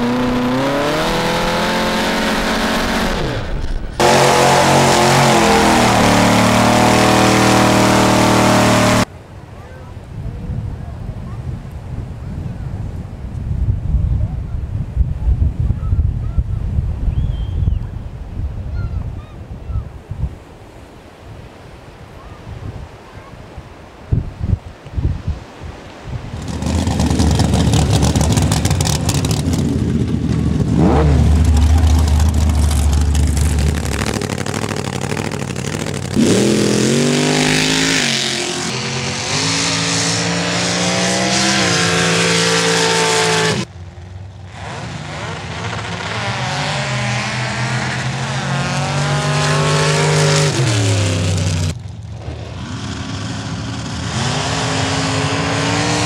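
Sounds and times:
off-road vehicle engines revving: 0.0s - 9.1s, 26.3s - 56.0s.

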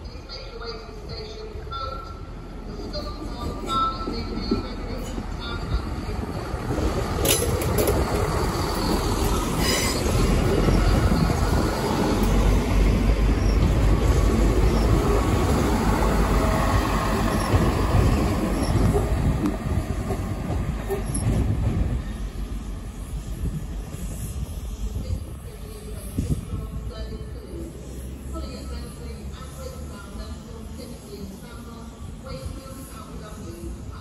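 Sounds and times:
train rumbling on rails: 0.0s - 34.0s.

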